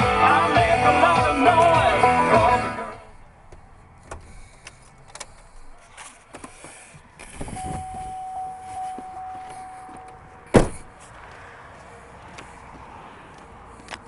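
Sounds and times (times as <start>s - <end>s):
truck door opening: 3.6s - 11.0s
warning chime: 7.5s - 10.3s
truck door slamming shut: 10.5s - 10.9s.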